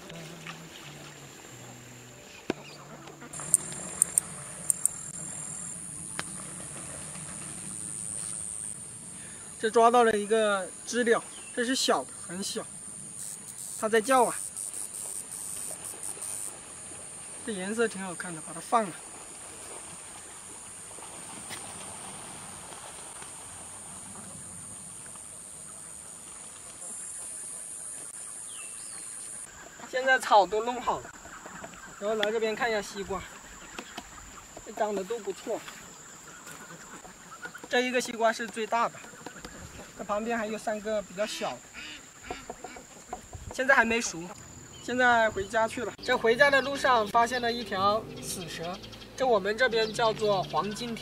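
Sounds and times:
cicada buzzing: 0.1s - 31.4s
sharp clicks: 3.5s - 5.0s.

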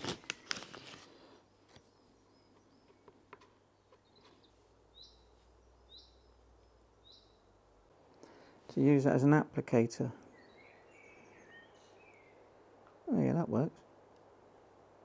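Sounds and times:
plastic pouch crinkling: 0.0s - 1.8s.

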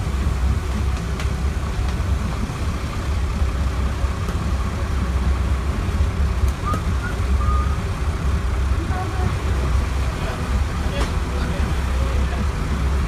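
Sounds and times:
boat engines rumbling: 0.0s - 13.0s
wind: 0.0s - 13.0s.

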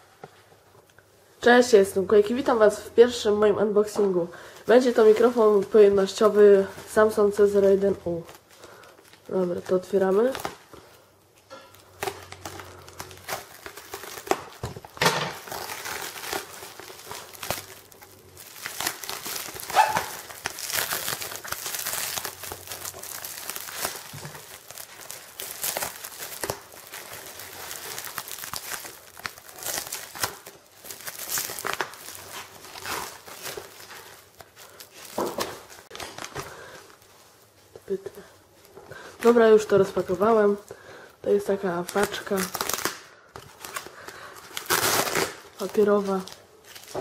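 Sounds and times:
paper tearing and crinkling: 11.6s - 37.1s, 41.8s - 47.0s.

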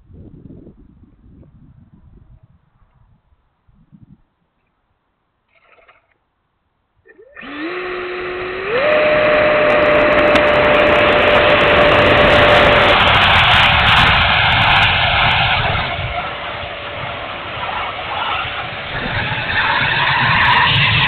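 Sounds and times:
electric ducted fan whine: 7.2s - 21.0s
rushing air: 7.4s - 21.0s.

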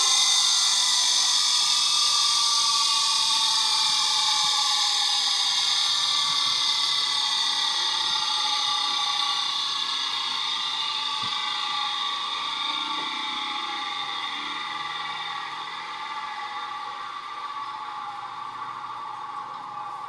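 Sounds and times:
steel tool on grinding wheel: 0.0s - 1.9s
grinder wheel whining: 0.0s - 20.0s.

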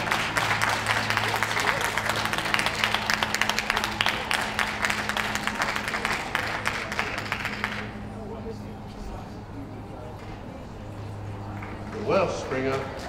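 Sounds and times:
audience applauding: 0.0s - 8.1s
steady low hum: 0.0s - 13.0s.

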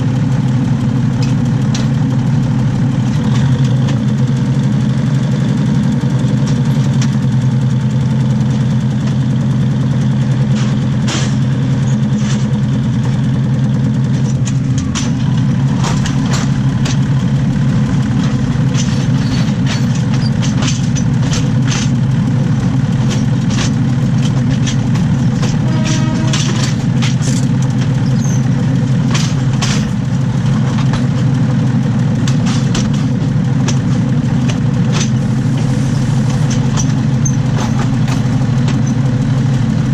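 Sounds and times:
railcar engine and wheels droning: 0.0s - 39.9s
sharp clicks and knocks: 1.1s - 2.2s, 14.0s - 31.3s, 32.2s - 39.6s.

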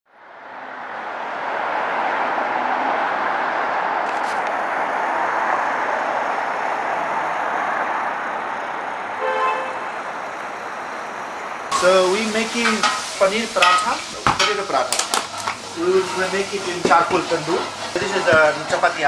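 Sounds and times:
road traffic: 0.1s - 19.0s
car horn toot: 9.2s - 9.9s.

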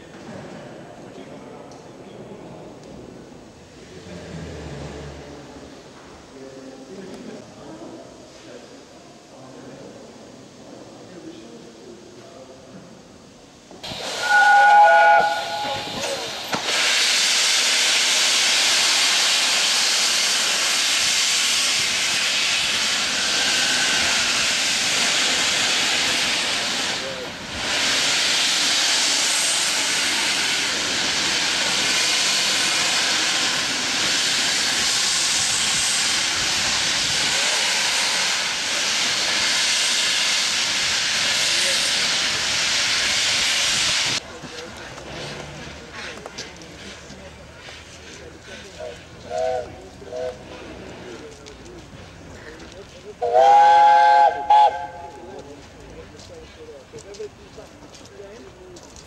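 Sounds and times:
steam hissing from drain cocks: 13.8s - 44.2s
steam whistle blast: 14.0s - 16.1s, 53.2s - 55.1s.

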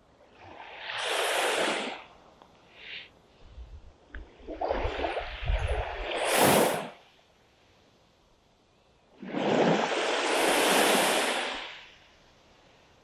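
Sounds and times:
small waves washing on sand: 0.3s - 2.2s, 4.3s - 7.0s, 9.2s - 12.1s
wind gusting across microphone: 3.5s - 6.9s.

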